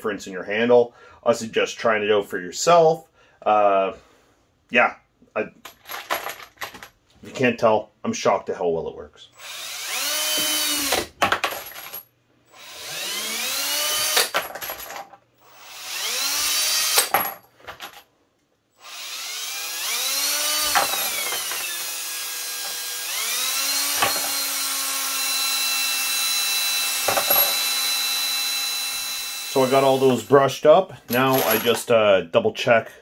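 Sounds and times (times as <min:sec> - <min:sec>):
cordless drill motor whining: 0:09.4 - 0:11.1, 0:12.5 - 0:14.3, 0:15.4 - 0:17.1, 0:18.8 - 0:30.4.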